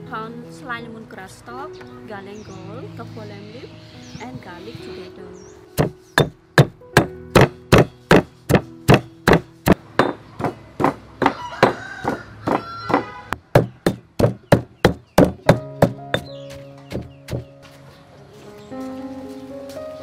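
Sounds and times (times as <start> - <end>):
background music: 0.0 - 11.1, 13.8 - 20.0
pestle pounding in stone mortar: 5.8 - 17.5.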